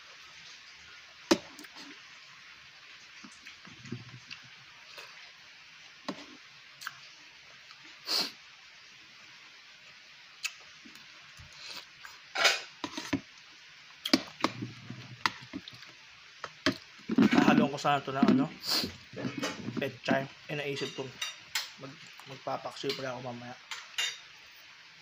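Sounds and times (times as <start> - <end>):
spoon scraping a bowl: 12.4 - 13.2, 17.1 - 17.6.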